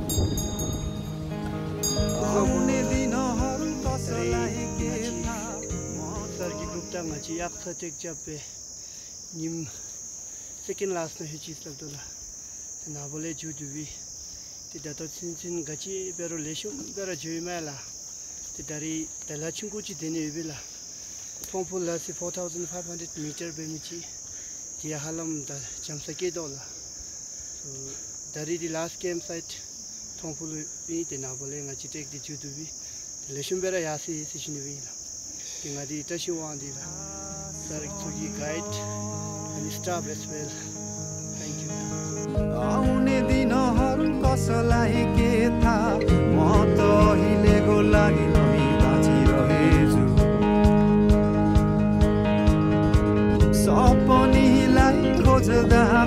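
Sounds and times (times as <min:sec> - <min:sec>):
insects droning: 0:00.0 - 0:56.0
man talking: 0:06.2 - 0:08.5, 0:35.7 - 0:40.7.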